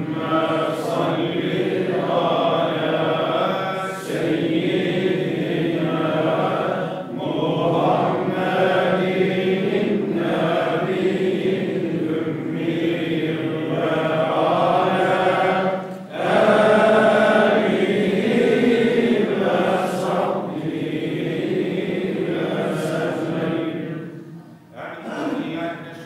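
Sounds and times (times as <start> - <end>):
man reciting melodically: 22.2 - 26.0.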